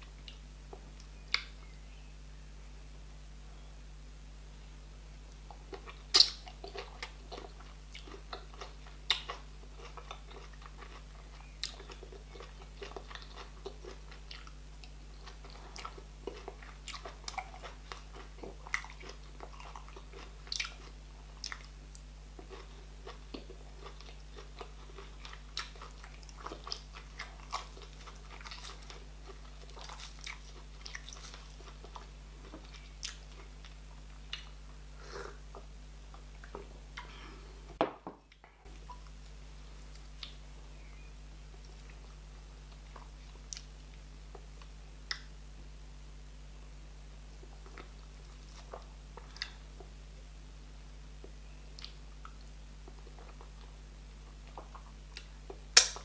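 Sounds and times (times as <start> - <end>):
faint low hum: 0.0 - 56.0
wet chewing and lip smacks: 5.4 - 34.6, 51.8 - 53.6.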